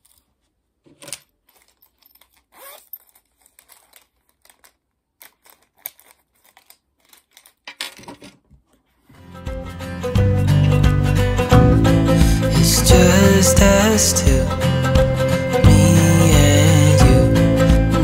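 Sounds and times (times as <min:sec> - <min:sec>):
book pages rustling: 0:00.0 - 0:09.1
rustling and crinkling of pouch: 0:00.0 - 0:09.1
music: 0:09.2 - 0:18.0.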